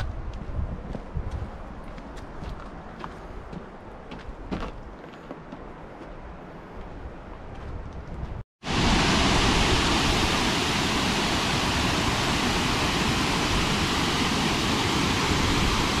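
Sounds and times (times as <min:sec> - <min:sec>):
waterfall rushing: 0:08.6 - 0:16.0.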